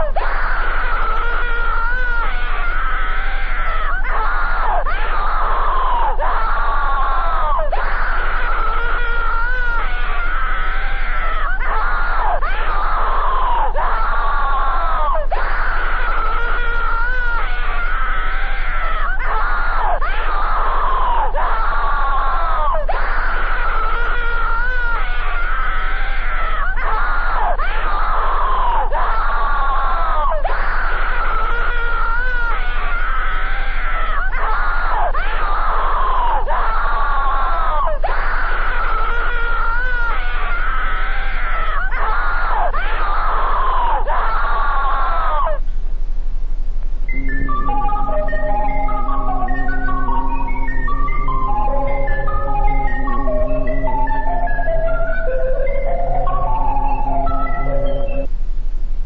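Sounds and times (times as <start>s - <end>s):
distorted scream-like wailing: 0.0s - 58.3s
constant low hum: 39.1s - 59.0s.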